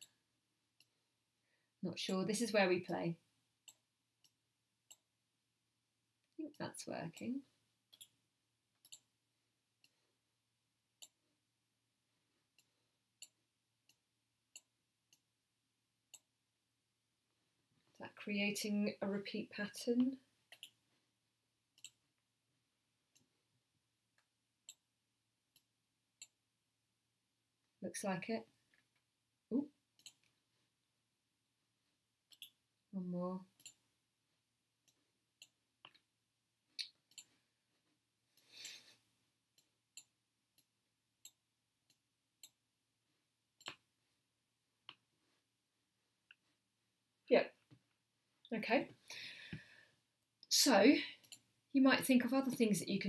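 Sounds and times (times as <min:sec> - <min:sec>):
computer mouse clicks: 0:21.8 - 0:22.0, 0:32.3 - 0:32.6.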